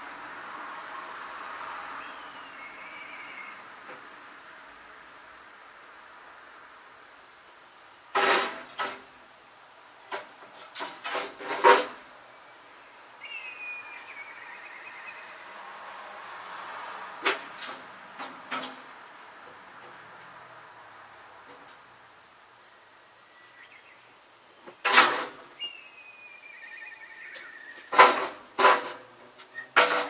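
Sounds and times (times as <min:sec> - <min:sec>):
short falling squeal: 0:02.0 - 0:03.5, 0:13.2 - 0:15.4, 0:25.6 - 0:28.0.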